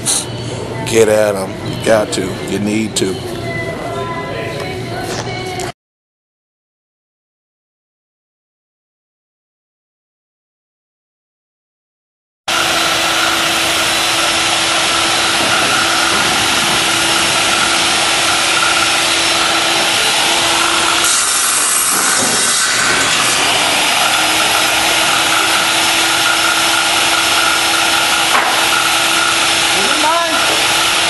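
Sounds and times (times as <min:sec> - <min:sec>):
electric power saw whining: 0:12.5 - 0:31.0.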